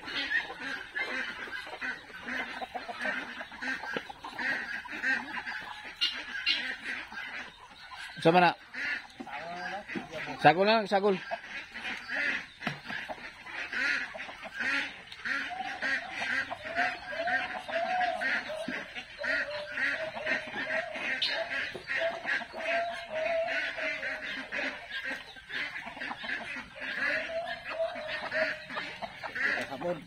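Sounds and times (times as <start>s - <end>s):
chickens clucking: 0.0s - 30.0s.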